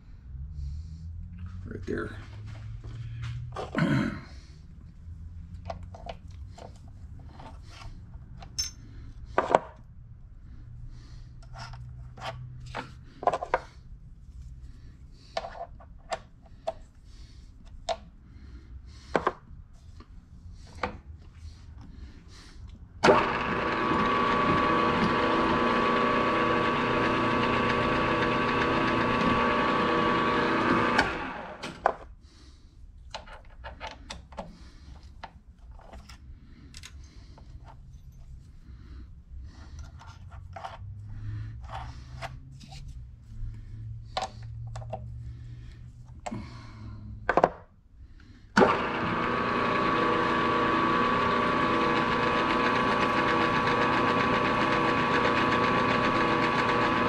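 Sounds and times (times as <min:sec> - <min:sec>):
tools being handled: 0:05.7 - 0:09.7, 0:33.0 - 0:38.5, 0:39.6 - 0:41.0
milling machine spindle whine: 0:23.0 - 0:31.6, 0:48.6 - 0:57.0.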